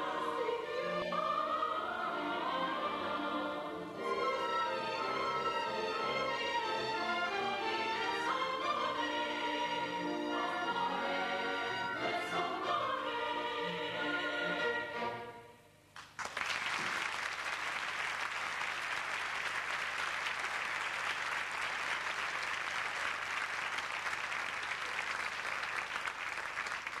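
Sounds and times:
audience applause: 16.0 - 27.0.

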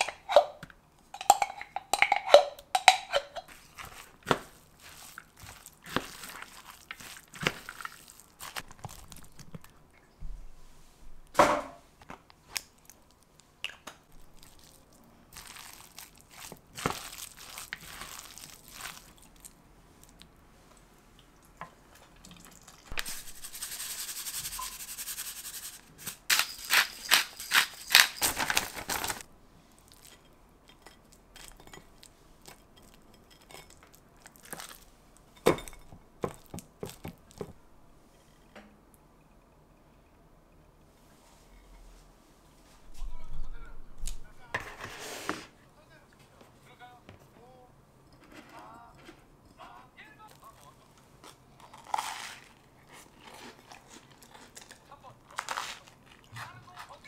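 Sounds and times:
salt pouring from bag: 22.9 - 26.7
wooden spatula scraping glass bowl: 23.1 - 25.8.

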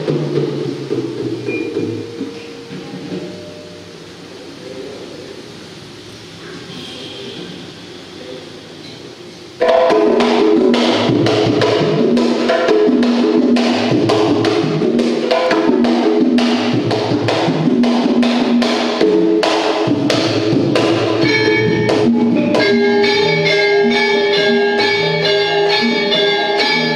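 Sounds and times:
hand drums playing sharp strokes: 0.0 - 4.7, 5.3 - 26.9
metallophones ringing: 1.5 - 4.2, 21.2 - 26.9.

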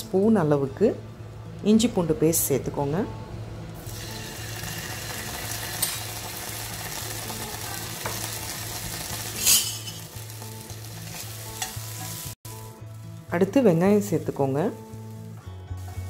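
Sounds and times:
paste sizzling in hot oil: 3.8 - 16.0.

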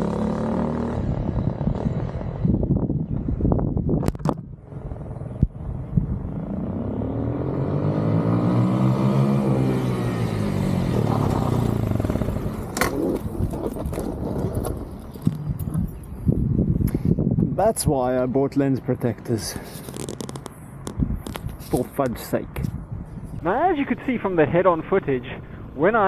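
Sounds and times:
motorcycle engine passing: 0.0 - 3.5, 4.7 - 15.6
clatter and scraping on ground: 10.9 - 16.2, 19.2 - 23.5.

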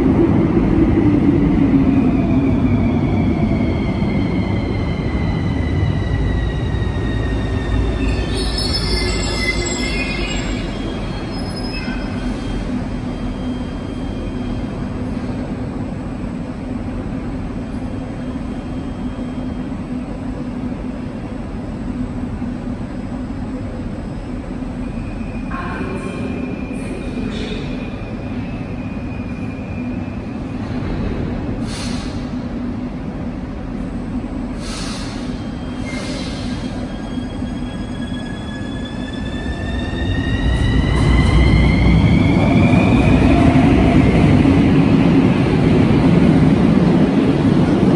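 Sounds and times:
metro train rumbling: 0.0 - 47.9
train wheel squeal: 6.3 - 14.7, 34.6 - 43.0.

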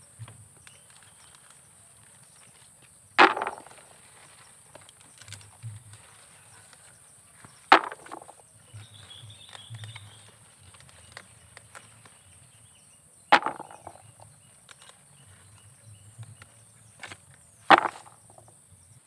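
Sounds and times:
snapping rustles of stalks: 0.6 - 12.6, 13.4 - 18.4
leaves crackling: 9.0 - 12.5.

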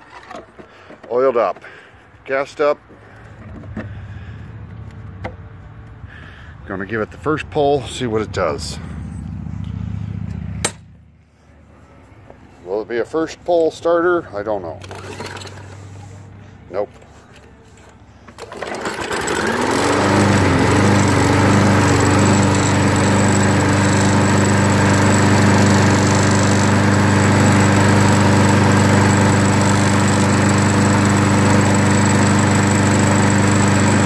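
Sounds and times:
lawn mower engine starting: 0.0 - 1.8, 14.7 - 16.3, 18.2 - 34.0.

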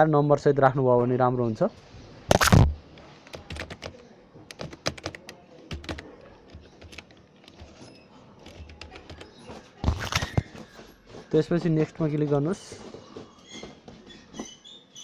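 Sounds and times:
computer keyboard typing: 3.2 - 9.4.

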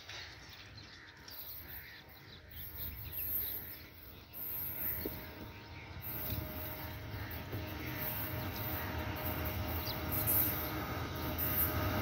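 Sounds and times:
birds chirping: 0.0 - 12.0
diesel locomotive rumble: 2.5 - 12.0.

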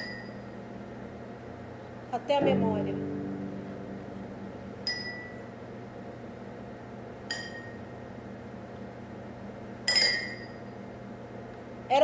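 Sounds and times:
steady low hum: 2.4 - 9.9.

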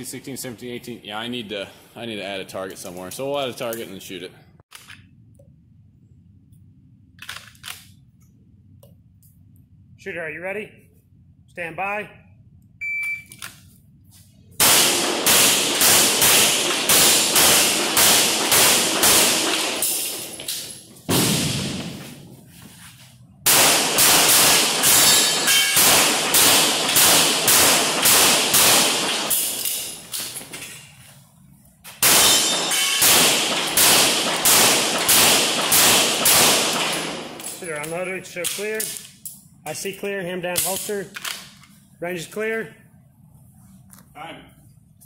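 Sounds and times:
shot timer beep: 12.8 - 13.4
rapid handgun fire echoing: 14.6 - 20.3, 23.5 - 29.6, 32.0 - 37.4.

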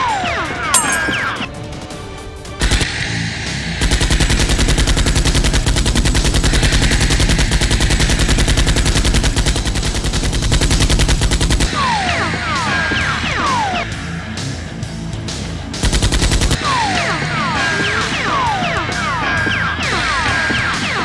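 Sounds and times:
background music: 0.0 - 3.9, 11.7 - 21.0.

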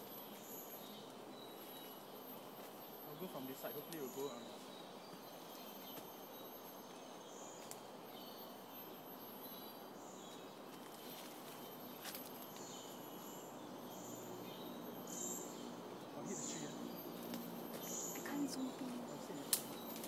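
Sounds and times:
faint clicks: 19.5 - 20.0.

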